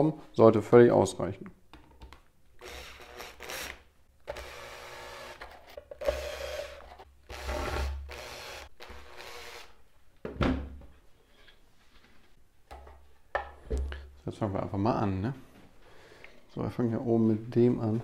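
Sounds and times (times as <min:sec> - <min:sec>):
cordless drill driving screws: 0:02.6 - 0:09.7.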